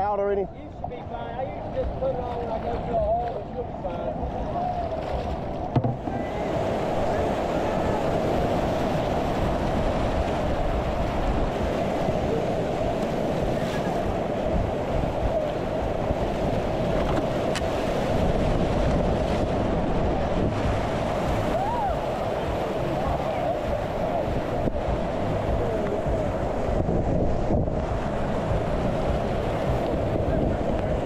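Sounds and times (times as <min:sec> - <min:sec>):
whitewater rapids rushing: 0:04.0 - 0:26.7.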